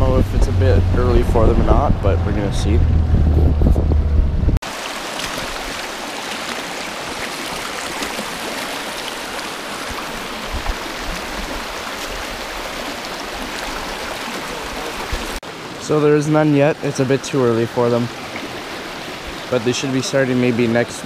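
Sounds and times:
creek rushing over stones: 0:04.6 - 0:21.0.

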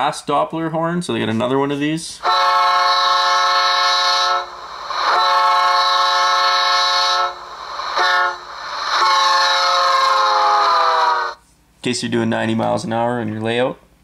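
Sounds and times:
diesel horn blasts from speaker: 0:02.2 - 0:11.4.

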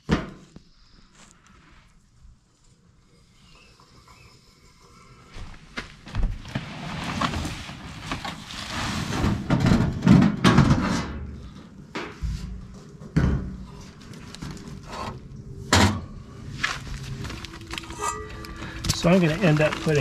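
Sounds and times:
foil wrap rustling: 0:16.5 - 0:20.0.

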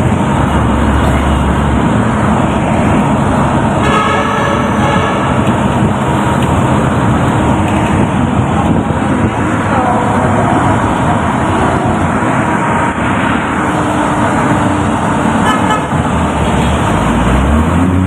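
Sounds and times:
street traffic: 0:00.0 - 0:18.0
vehicle engine and road noise: 0:00.0 - 0:18.0.

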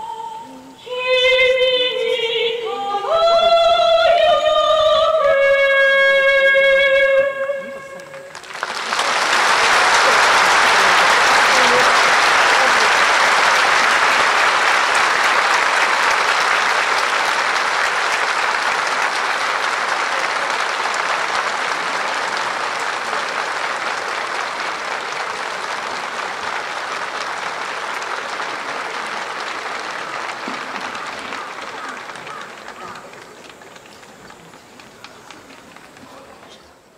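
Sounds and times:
crowd applauding: 0:07.6 - 0:36.8.

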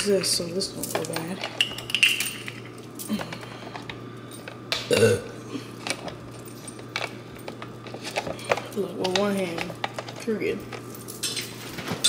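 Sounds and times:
short throaty vocal sound: 0:04.9 - 0:05.3.

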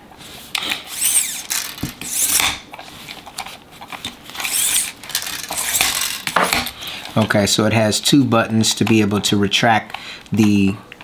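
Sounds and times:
tape measure blade whirring: 0:00.6 - 0:02.6, 0:04.3 - 0:06.8.

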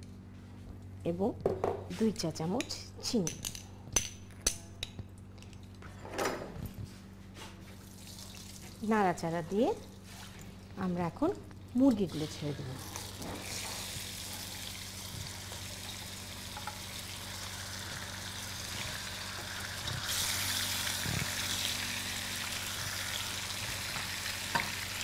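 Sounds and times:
chicken sizzling in hot oil: 0:12.1 - 0:25.0.

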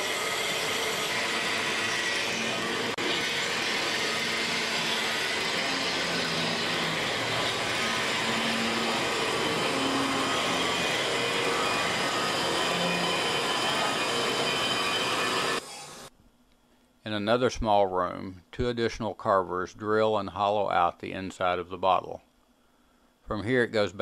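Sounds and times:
carving spindle grinding crystal: 0:00.0 - 0:16.1.

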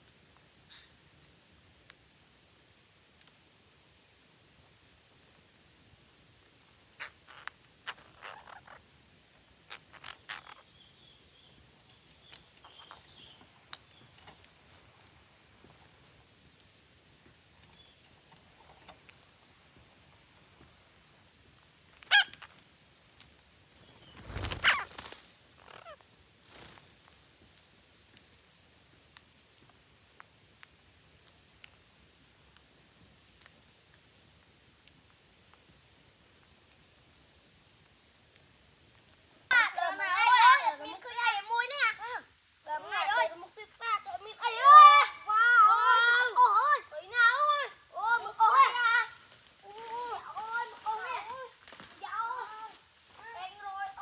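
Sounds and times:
parakeets calling: 0:06.9 - 0:14.8, 0:21.9 - 0:22.6, 0:23.9 - 0:26.0.

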